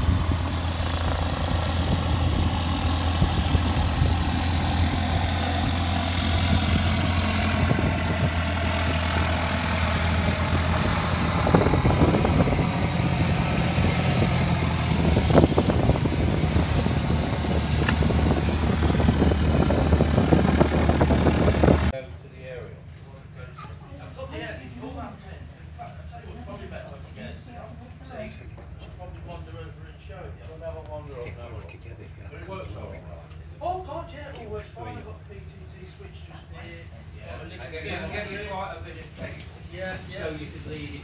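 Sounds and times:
propeller aircraft engine droning: 0.0 - 22.0.

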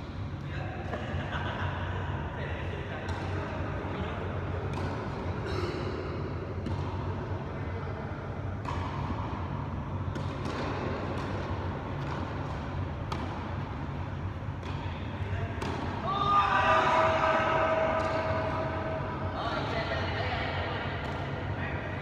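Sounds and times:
low hum of sports hall: 0.0 - 22.0
tennis balls bounced and struck: 4.4 - 5.5, 6.2 - 7.5, 8.3 - 19.2.

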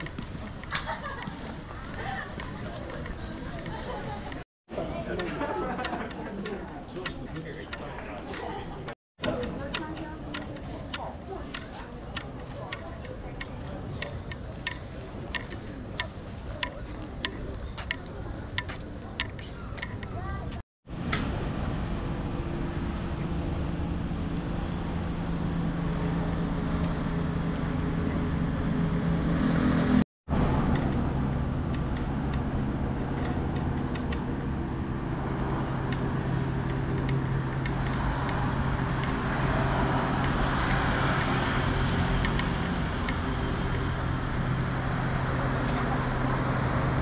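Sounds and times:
city traffic noise: 0.0 - 47.0
low engine drone: 20.9 - 47.0
vehicle passing: 22.4 - 47.0.

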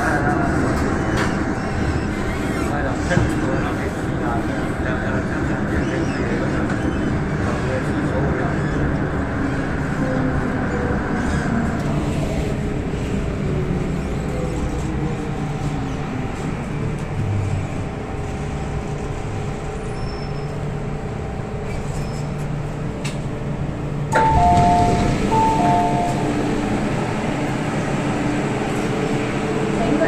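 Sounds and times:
standing train car hum: 0.0 - 30.0
two-tone door chime: 24.1 - 26.5.

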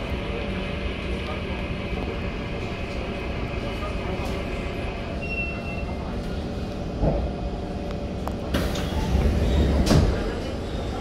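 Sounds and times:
train rumble and hum: 0.0 - 11.0
sliding doors opening: 8.4 - 11.0.

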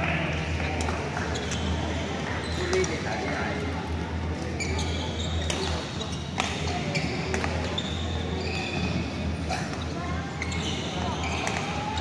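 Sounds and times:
low hall hum: 0.0 - 12.0
shoes squeaking on court floor: 1.1 - 3.3, 4.4 - 9.1, 9.7 - 12.0.

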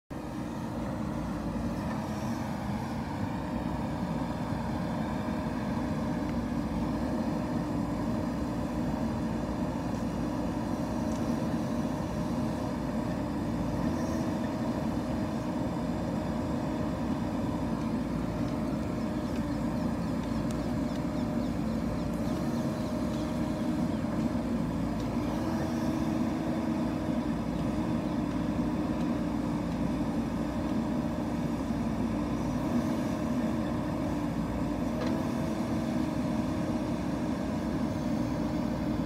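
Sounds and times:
diesel engine running: 0.1 - 39.0.

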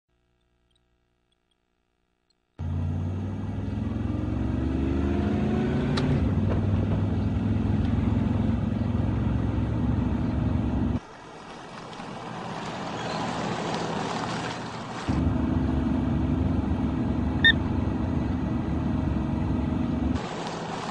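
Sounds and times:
car engine accelerating: 2.6 - 11.0, 15.1 - 20.9
car approaching on dirt road: 2.6 - 20.9.

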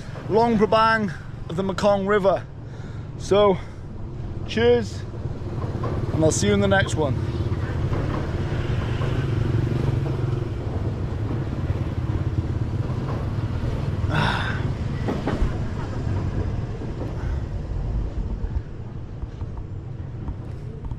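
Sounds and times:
traffic engine rumble: 0.0 - 20.9.

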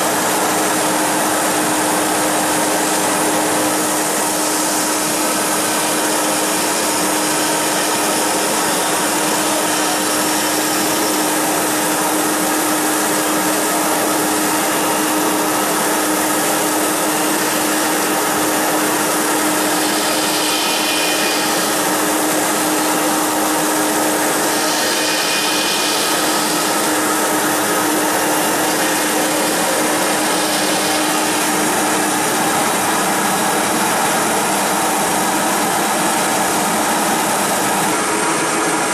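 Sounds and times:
router spindle cutting wood: 0.0 - 38.9
vacuum pump running: 0.0 - 38.9.

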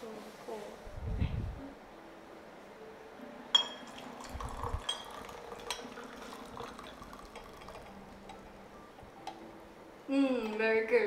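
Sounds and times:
glass clinking on glass: 3.5 - 8.4
tea trickling into pitcher: 3.6 - 8.7.

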